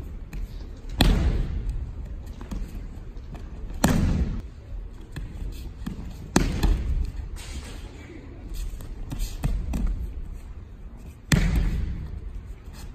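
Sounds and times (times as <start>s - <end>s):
bare feet thudding on mats: 0.1s - 4.4s
body slapping onto mats: 0.4s - 4.4s.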